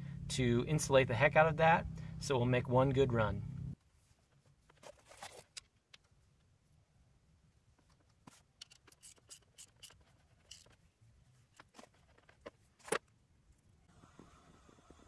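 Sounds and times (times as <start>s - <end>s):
small metal parts clicking: 8.6s - 10.8s.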